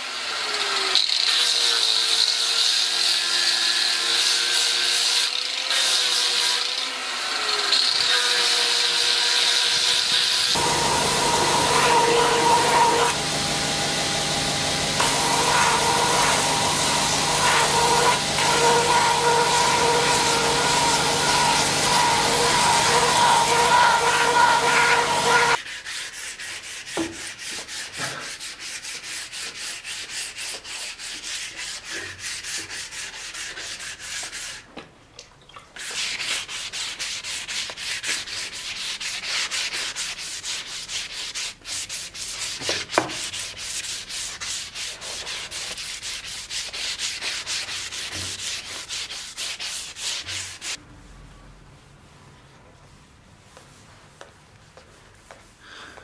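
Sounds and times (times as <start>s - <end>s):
belt grinder running: 0.0s - 25.6s
hand sanding wood: 1.4s - 34.7s, 35.8s - 50.8s.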